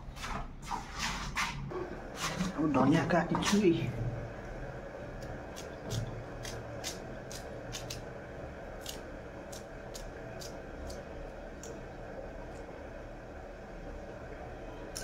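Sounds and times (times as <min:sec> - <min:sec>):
blade snipping herb stems: 0:05.5 - 0:08.0, 0:08.8 - 0:11.0.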